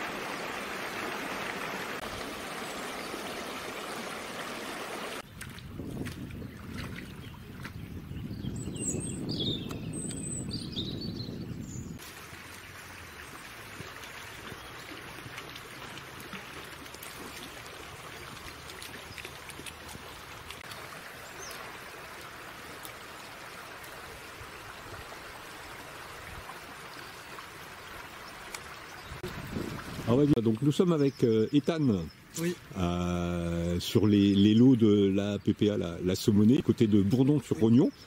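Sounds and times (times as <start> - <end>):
shallow river flowing: 0.0 - 7.8, 12.0 - 30.3.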